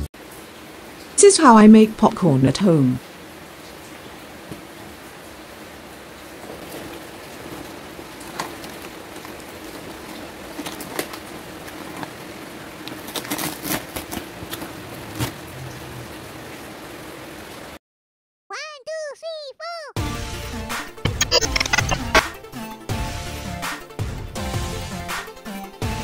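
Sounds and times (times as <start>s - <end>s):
steady rain: 0.0s - 17.8s
paper bag crinkling: 8.2s - 15.3s.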